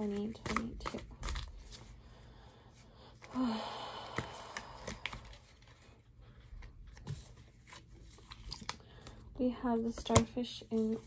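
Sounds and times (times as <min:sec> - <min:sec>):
cards being shuffled: 0:00.0 - 0:02.0, 0:04.2 - 0:09.2.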